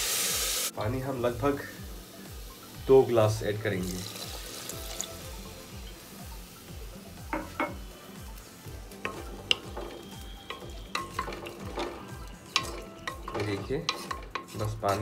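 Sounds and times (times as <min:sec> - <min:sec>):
spoon clinking and scraping pot: 0:07.3 - 0:07.9, 0:08.9 - 0:15.0
spoon stirring in a pot: 0:08.8 - 0:15.0.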